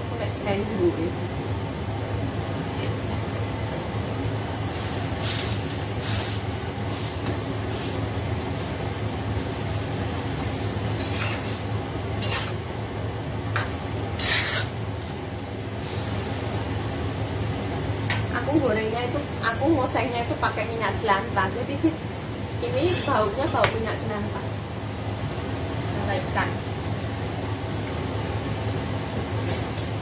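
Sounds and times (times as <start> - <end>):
steady low hum: 0.0 - 30.0
metal spatula scraping wok: 11.0 - 11.6, 12.2 - 12.6, 13.6 - 14.8, 22.8 - 23.2.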